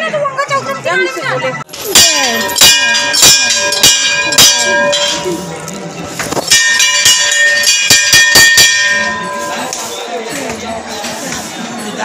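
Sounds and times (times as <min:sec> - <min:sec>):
temple bells clanging: 0:01.7 - 0:10.0.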